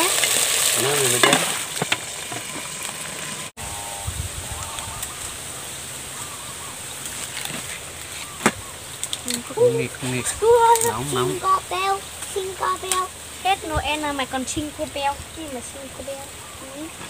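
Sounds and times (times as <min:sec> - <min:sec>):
water sizzling in hot pot: 0:00.0 - 0:03.5, 0:08.8 - 0:17.0.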